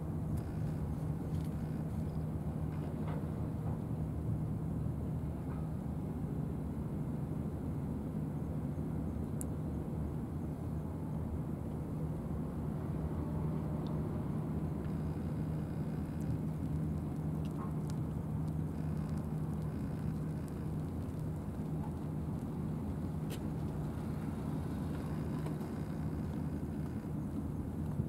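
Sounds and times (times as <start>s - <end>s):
low engine hum: 0.0s - 28.0s
faint clicks: 14.8s - 22.5s.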